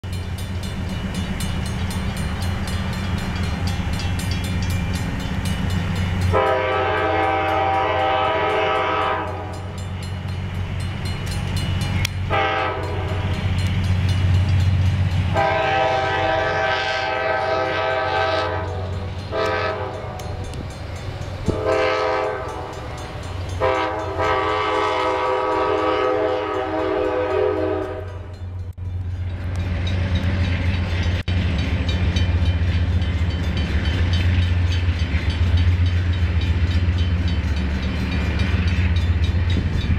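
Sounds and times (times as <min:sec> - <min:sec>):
diesel engines rumbling: 0:00.0 - 0:39.9
locomotive air horn blasts: 0:06.3 - 0:09.7, 0:12.3 - 0:13.4, 0:15.3 - 0:20.6, 0:21.4 - 0:22.8, 0:23.6 - 0:28.3.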